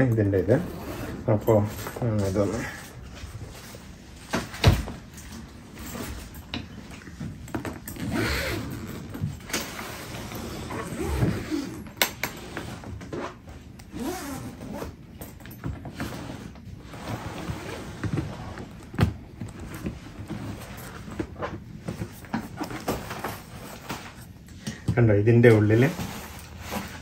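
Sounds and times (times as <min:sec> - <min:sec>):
suitcase zipper rasping: 0:00.4 - 0:02.9, 0:07.8 - 0:15.1, 0:15.9 - 0:18.9.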